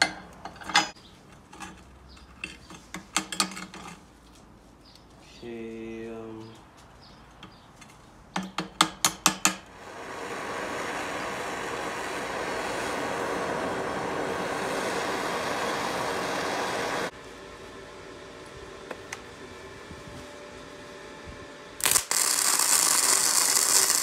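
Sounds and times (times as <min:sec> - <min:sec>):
welding arc crackling: 0:21.8 - 0:24.0
welding arc popping: 0:21.8 - 0:24.0.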